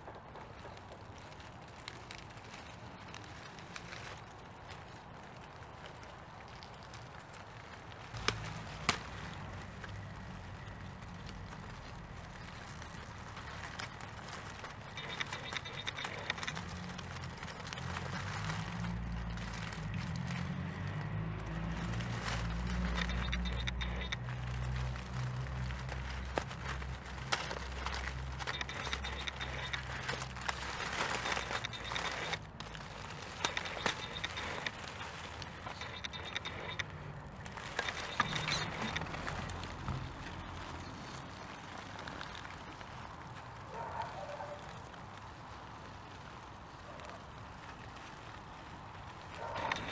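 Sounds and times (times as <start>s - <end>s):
leaves and twigs crackling: 0.0s - 49.9s.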